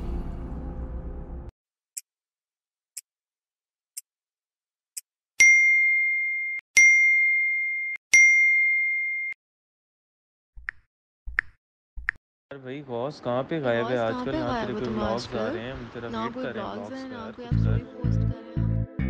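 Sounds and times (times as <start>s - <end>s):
electronic dings: 5.4s - 9.4s.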